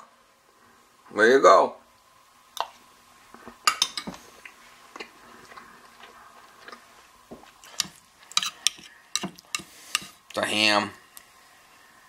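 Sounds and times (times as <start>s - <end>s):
faint steady hum: 0.0s - 12.0s
man chewing with wet smacks: 4.3s - 10.4s.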